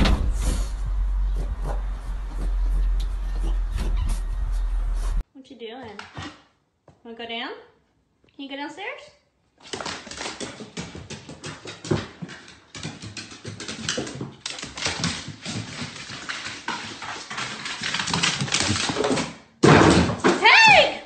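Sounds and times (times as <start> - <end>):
dog claws tapping on wooden stairs: 9.6 - 20.4.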